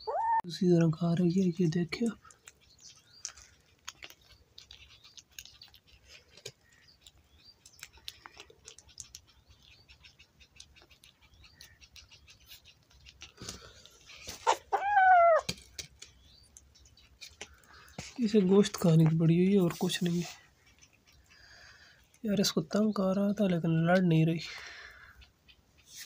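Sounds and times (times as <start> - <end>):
kitten meowing: 0.0 - 0.5, 14.5 - 15.5
small birds chirping: 0.0 - 26.0
kitten chewing and crunching: 1.4 - 22.4.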